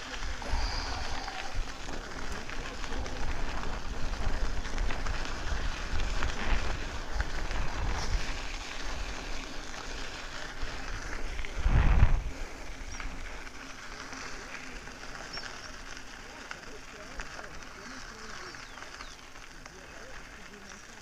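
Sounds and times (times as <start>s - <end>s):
wind buffeting microphone: 0.0s - 13.9s
bike tyres rolling on dirt road: 0.0s - 21.0s
low rumble: 11.3s - 12.6s.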